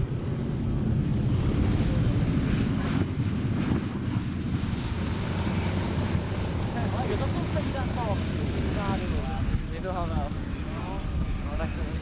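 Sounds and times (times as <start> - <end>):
propeller plane engines rumbling: 0.0 - 12.0
wind buffeting microphone: 0.0 - 12.0.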